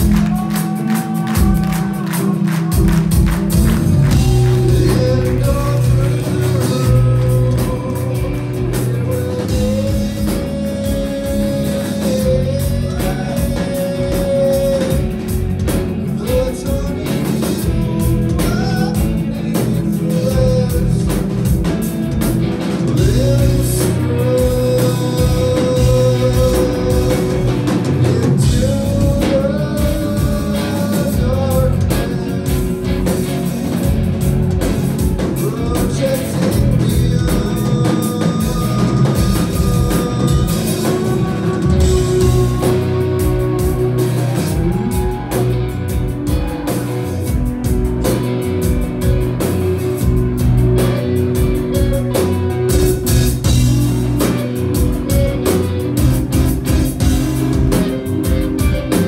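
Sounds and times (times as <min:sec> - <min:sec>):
person singing long notes: 0:00.0 - 0:21.4, 0:22.9 - 0:47.7
drums: 0:00.0 - 0:59.0
electric guitar: 0:00.0 - 0:59.0.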